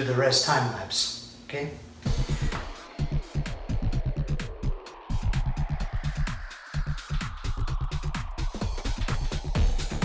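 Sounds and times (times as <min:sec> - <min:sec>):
electronic dance music: 0:02.0 - 0:10.0.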